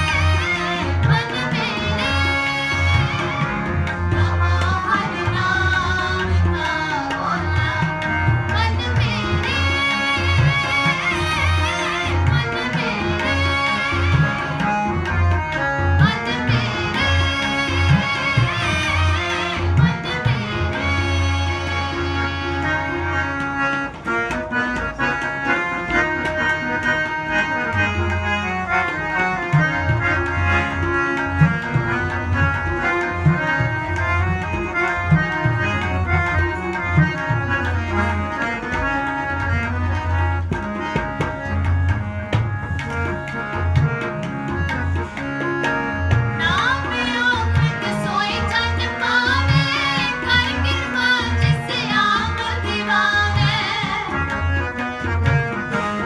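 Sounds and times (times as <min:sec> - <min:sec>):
woman singing: 0:00.0 - 0:03.2, 0:04.2 - 0:13.8, 0:16.0 - 0:21.5, 0:46.4 - 0:54.2
harmonium melody: 0:00.0 - 0:56.0
tabla rhythm: 0:00.0 - 0:56.0.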